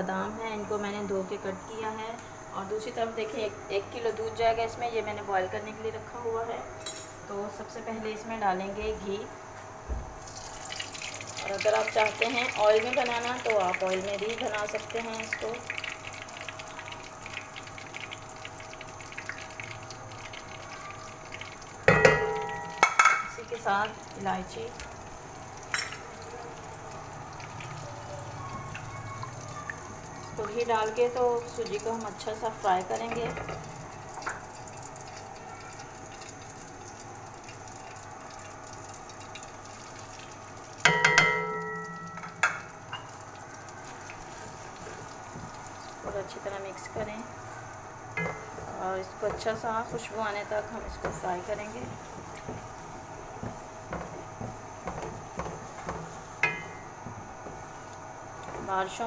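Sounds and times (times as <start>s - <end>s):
faint steady hiss: 0.0s - 59.0s
ghee sizzling in wok: 0.2s - 59.0s
metal clank in pan: 21.9s - 23.4s, 40.8s - 43.2s, 48.2s - 48.7s, 54.9s - 57.0s
light crackles: 42.5s - 48.7s.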